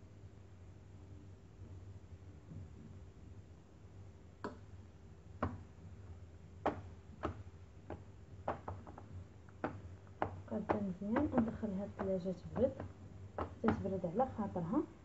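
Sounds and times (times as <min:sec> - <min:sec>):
low steady hum: 0:00.0 - 0:15.0
mould knocking on counter: 0:06.6 - 0:14.8.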